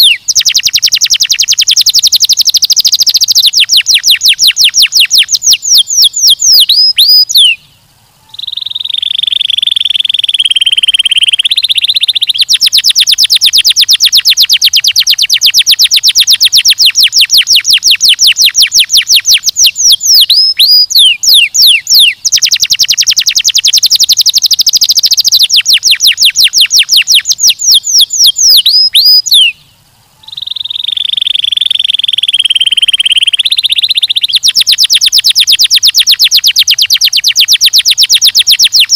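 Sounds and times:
canary singing trills: 0:00.0 - 0:38.9.

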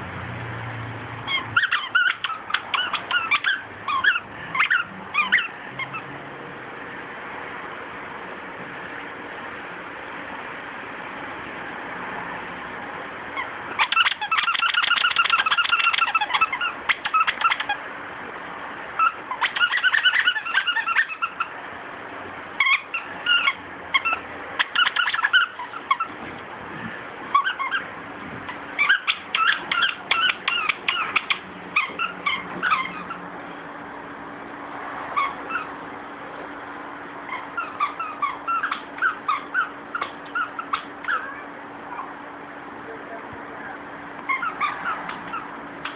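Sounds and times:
plush toy squeaking: 0:01.3 - 0:06.1, 0:13.4 - 0:17.8, 0:19.0 - 0:21.6, 0:22.6 - 0:26.2, 0:27.3 - 0:27.9, 0:28.5 - 0:33.3, 0:35.2 - 0:35.8, 0:37.2 - 0:42.2, 0:44.2 - 0:45.9.

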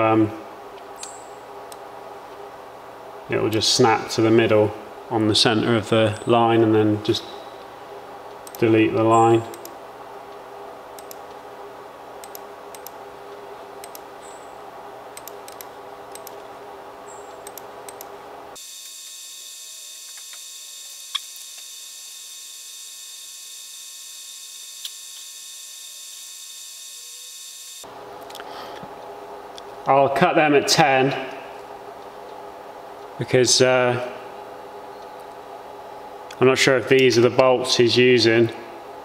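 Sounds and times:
electrical hum: 0:00.0 - 0:39.0
sharp clicks: 0:08.3 - 0:08.7, 0:09.5 - 0:09.8, 0:11.0 - 0:11.4, 0:12.2 - 0:13.0, 0:13.8 - 0:14.1, 0:15.2 - 0:16.5, 0:17.4 - 0:18.1
computer mouse clicks: 0:08.4 - 0:08.6, 0:09.5 - 0:09.8, 0:11.0 - 0:11.4, 0:12.2 - 0:13.0, 0:13.8 - 0:14.1, 0:15.2 - 0:16.5, 0:17.4 - 0:18.1
high-pitched electronic whine: 0:18.6 - 0:27.9.

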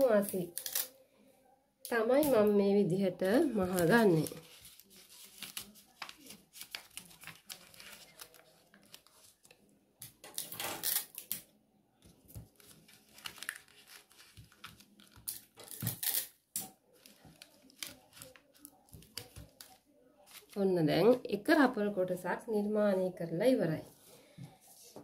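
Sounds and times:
paper rustling and crinkling: 0:03.6 - 0:09.7, 0:12.0 - 0:16.2, 0:16.8 - 0:20.6.

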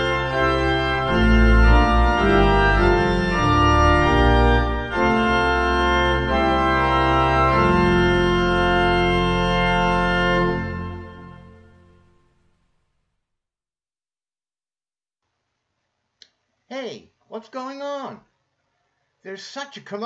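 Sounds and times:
organ playing held chords: 0:00.0 - 0:12.5.

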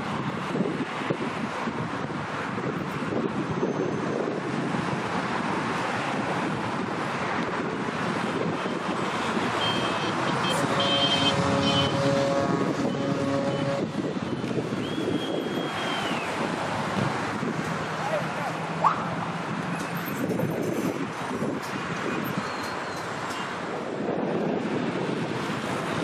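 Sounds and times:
wind buffeting microphone: 0:00.0 - 0:22.6, 0:23.6 - 0:26.0
waterside rushing: 0:08.5 - 0:19.6
wavering pitched sound: 0:09.9 - 0:14.0
short high whistle-like tone: 0:14.8 - 0:16.3.

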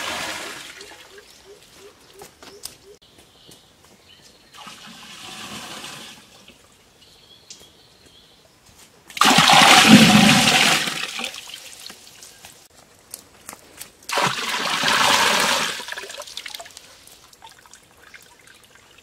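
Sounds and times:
water pouring and splashing: 0:00.0 - 0:01.3, 0:04.5 - 0:06.6, 0:09.2 - 0:12.3, 0:14.1 - 0:19.0.

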